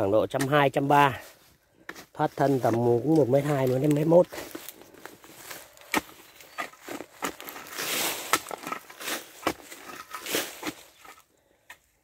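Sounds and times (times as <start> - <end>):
shovel digging loose soil: 1.9 - 11.2.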